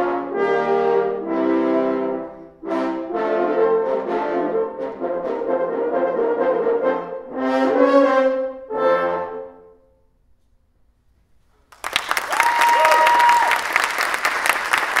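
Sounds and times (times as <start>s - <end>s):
french horns playing: 0.0s - 9.9s
audience applause: 11.7s - 15.0s
audience cheer: 11.9s - 15.0s.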